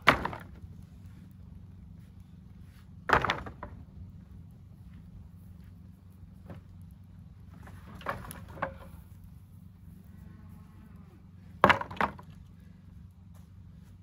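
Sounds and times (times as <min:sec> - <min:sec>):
wooden boards knocking and clattering: 0:00.0 - 0:00.6, 0:03.1 - 0:03.8, 0:07.6 - 0:08.9, 0:11.6 - 0:12.4.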